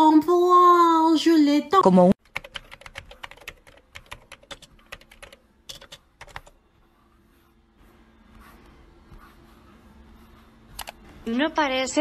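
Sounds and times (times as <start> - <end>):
laptop keyboard keys clicking: 2.2 - 6.6, 10.7 - 11.0.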